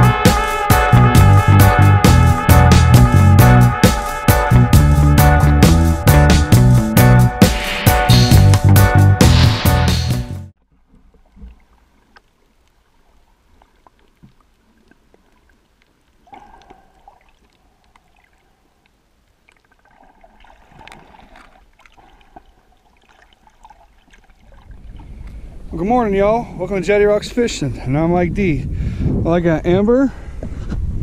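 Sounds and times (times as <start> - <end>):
intro music: 0.0 - 10.5
small underwater clicks: 10.7 - 24.3
underwater gurgling: 10.7 - 25.5.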